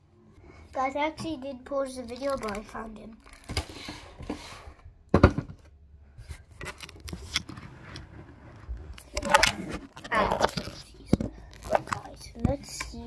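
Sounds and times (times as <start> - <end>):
plastic packaging rustling: 1.9 - 4.7, 6.3 - 12.4.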